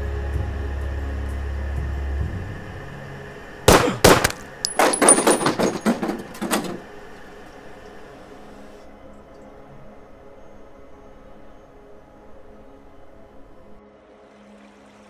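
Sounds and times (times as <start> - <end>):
low music drone: 0.0 - 15.0
handgun shots: 3.7 - 5.5.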